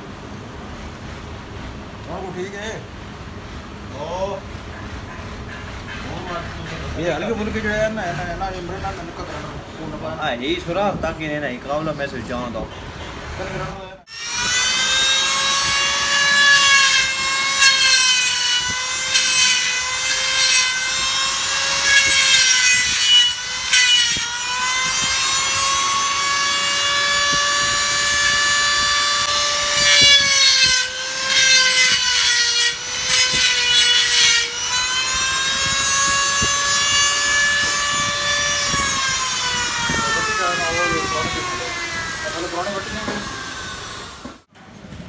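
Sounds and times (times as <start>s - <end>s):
die grinder whining: 14.1s - 44.4s
grinding on metal: 14.1s - 44.4s.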